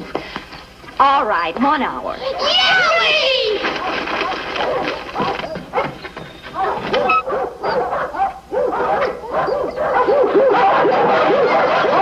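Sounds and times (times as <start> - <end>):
dogs barking: 3.6 - 12.0.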